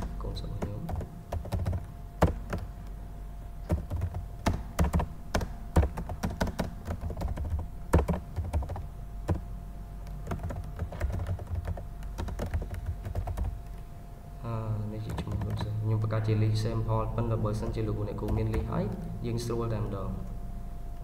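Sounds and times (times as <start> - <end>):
computer keyboard typing: 0.0 - 2.7, 3.6 - 9.4, 10.2 - 13.8, 15.0 - 15.7, 18.2 - 19.1.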